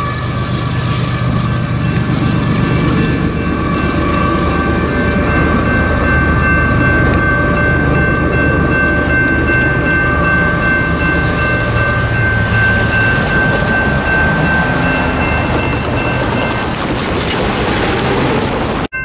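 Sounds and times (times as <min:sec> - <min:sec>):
locomotive air horn blast: 0:00.0 - 0:02.6
train rumble: 0:00.0 - 0:19.0.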